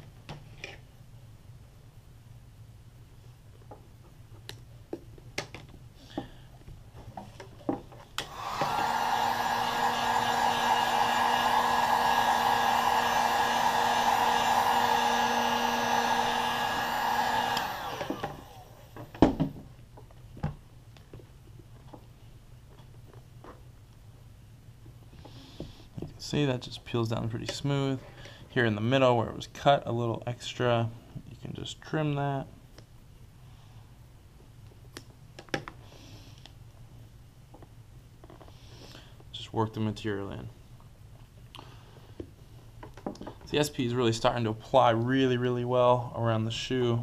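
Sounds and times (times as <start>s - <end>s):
heat gun blowing with whine: 8.2s - 19.0s.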